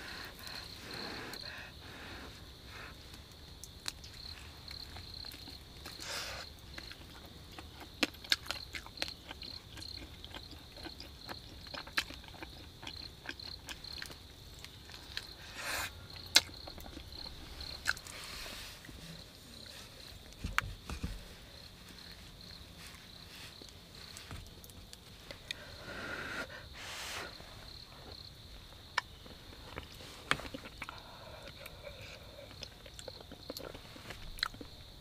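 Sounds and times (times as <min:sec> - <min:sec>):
chewing and crunching meat: 0:00.0 - 0:02.0, 0:03.1 - 0:20.6, 0:28.9 - 0:35.0
cricket chirping: 0:00.0 - 0:35.0.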